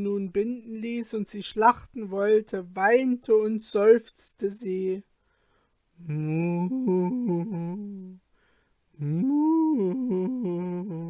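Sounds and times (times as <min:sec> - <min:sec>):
man humming a melody: 0:06.0 - 0:08.2, 0:09.0 - 0:11.0.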